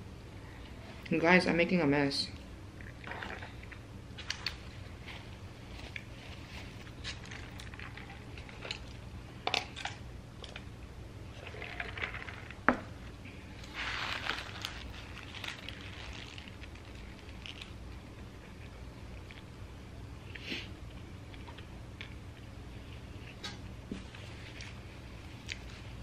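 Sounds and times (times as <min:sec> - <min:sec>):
low steady hum: 0:00.0 - 0:26.0
paper wrapper rustling: 0:13.6 - 0:17.8.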